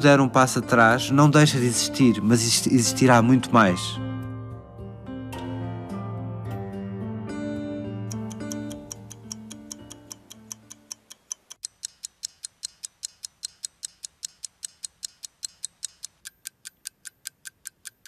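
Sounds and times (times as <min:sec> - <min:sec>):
soft instrumental music: 0:00.0 - 0:11.1
clock ticking: 0:08.1 - 0:18.0.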